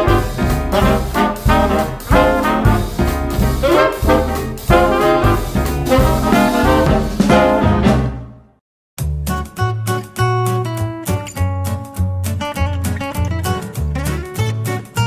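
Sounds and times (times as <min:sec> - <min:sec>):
swing music with brass: 0:00.0 - 0:09.8.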